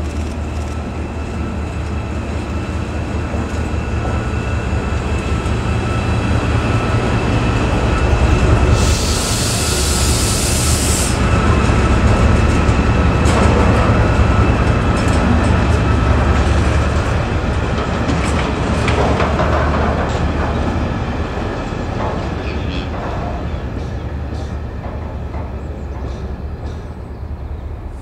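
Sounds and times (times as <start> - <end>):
train rumbling past: 0.0 - 28.0
locomotive hiss: 3.6 - 12.1.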